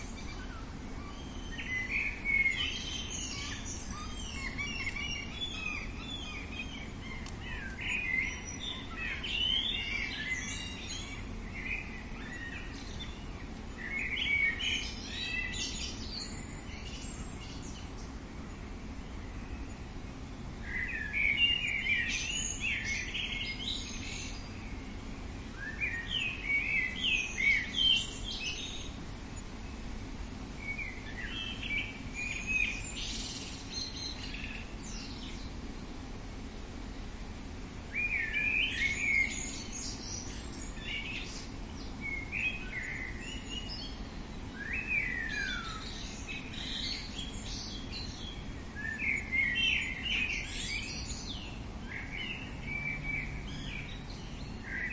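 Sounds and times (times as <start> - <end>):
songbird chirping and whistling: 0.0 - 17.9, 20.6 - 24.8, 25.5 - 29.0, 37.9 - 54.9
low background noise: 0.0 - 54.9.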